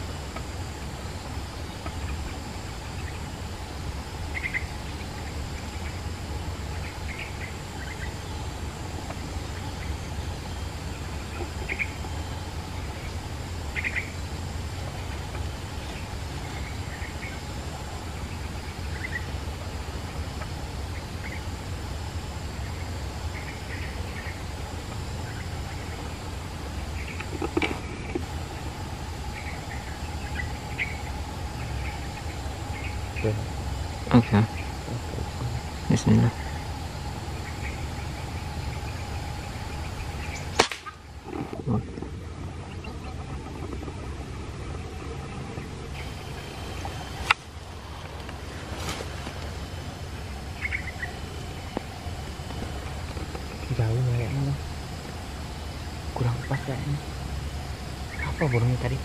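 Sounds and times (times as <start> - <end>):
insect drone: 0.0 - 59.0
bird chirps: 4.3 - 19.4, 25.1 - 41.2, 50.5 - 52.2, 58.0 - 59.0.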